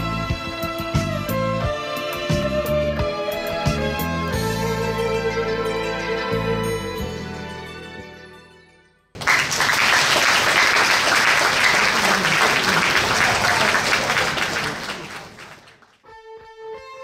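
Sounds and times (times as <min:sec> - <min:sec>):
audience applause: 0:09.2 - 0:16.0
stage music: 0:09.2 - 0:17.0.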